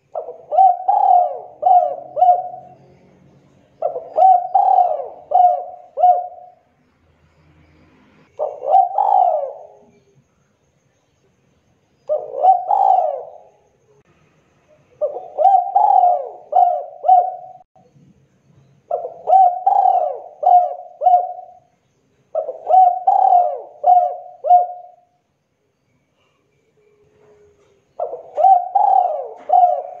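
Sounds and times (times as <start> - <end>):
dove cooing: 0.0 - 2.9, 3.7 - 6.7, 8.3 - 10.1, 12.0 - 13.7, 14.9 - 17.7, 18.9 - 21.7, 22.3 - 25.2, 27.1 - 30.0.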